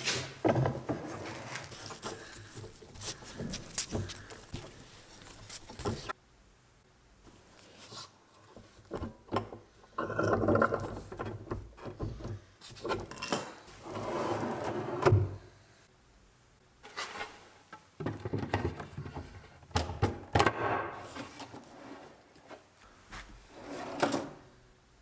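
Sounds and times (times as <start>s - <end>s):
drawer sliding on runners: 0.0s - 1.8s, 13.8s - 15.4s, 21.0s - 22.6s, 23.5s - 24.4s.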